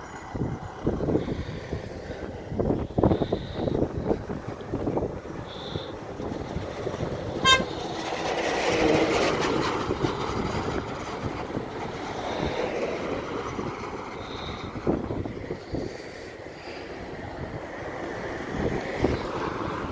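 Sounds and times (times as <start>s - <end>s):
wind rumble on microphone: 0.0s - 19.9s
vehicle passing on wet road: 6.6s - 14.6s
short horn toot: 7.4s - 7.8s.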